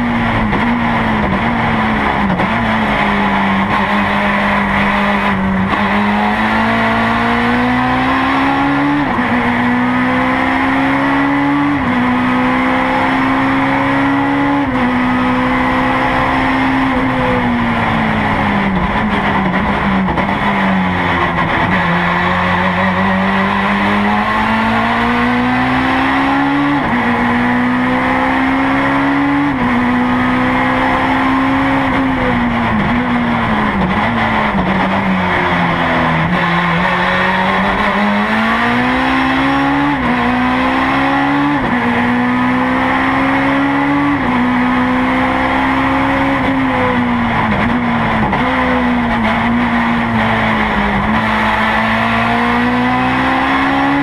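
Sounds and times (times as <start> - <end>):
race car engine revving from cabin: 0.0 - 54.0.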